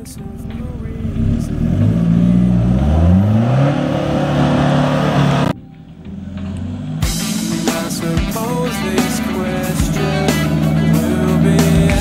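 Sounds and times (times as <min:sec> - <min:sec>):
engine revving hard: 0:01.0 - 0:05.6.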